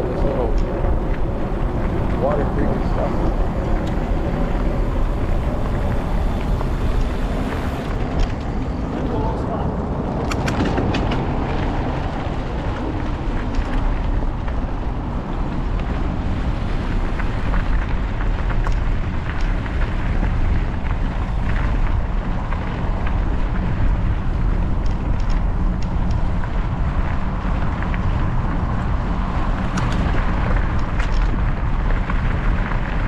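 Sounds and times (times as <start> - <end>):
bike tyres rolling on gravel: 0.0 - 33.0
wind buffeting microphone: 0.0 - 33.0
small clicks and rattles: 24.7 - 26.6, 29.6 - 33.0.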